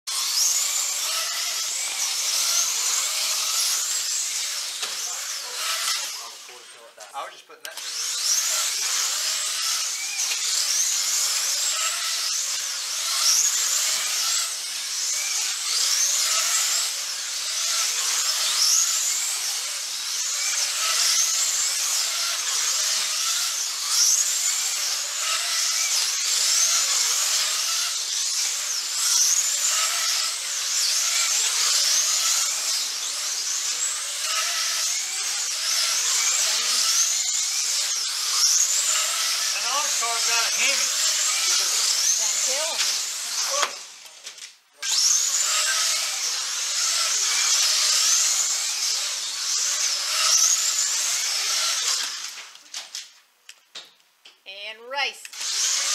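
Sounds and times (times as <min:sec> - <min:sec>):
slot car motors whining: 0:00.1 - 0:52.5, 0:55.3 - 0:55.9.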